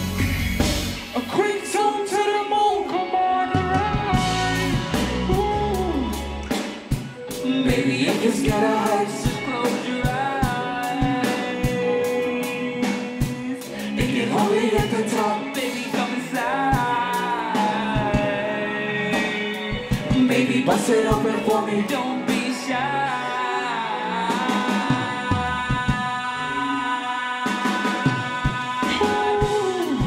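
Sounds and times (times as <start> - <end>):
deep bass: 0.0 - 1.3, 3.6 - 6.6
live rock band: 0.0 - 30.0
person singing: 0.0 - 30.0.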